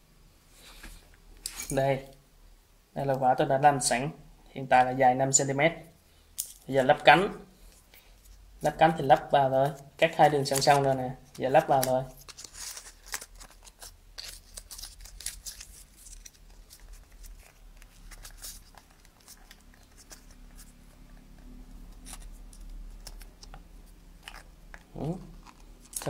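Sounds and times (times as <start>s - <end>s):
paper rustling and crinkling: 9.6s - 26.0s.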